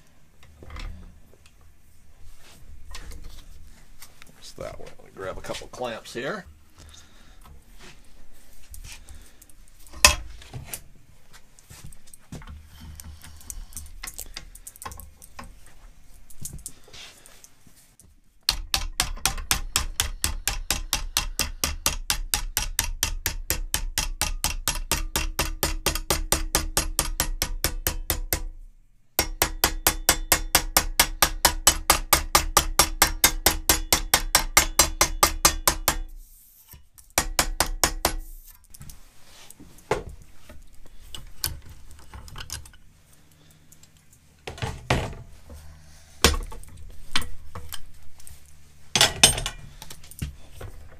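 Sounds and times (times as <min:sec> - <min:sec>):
mallet tapping aluminium: 0:18.5 - 0:28.5, 0:29.2 - 0:36.1, 0:37.2 - 0:38.3.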